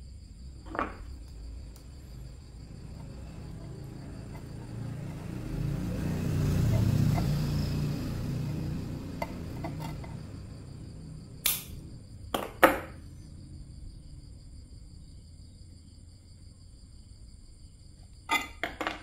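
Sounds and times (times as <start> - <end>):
low rumble of handling: 0.3 - 12.3
sharp metallic pliers clicks: 11.4 - 11.8.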